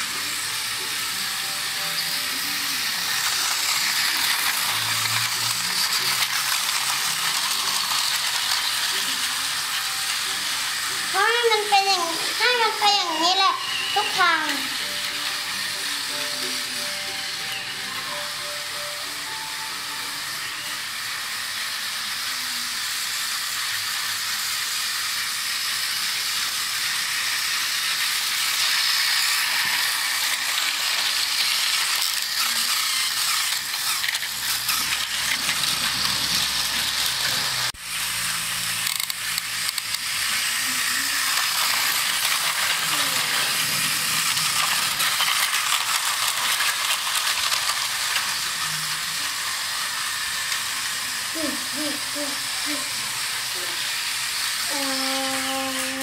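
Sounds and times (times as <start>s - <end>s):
toy train motors whirring: 0.0s - 56.0s
wheels clicking over track: 38.8s - 48.9s.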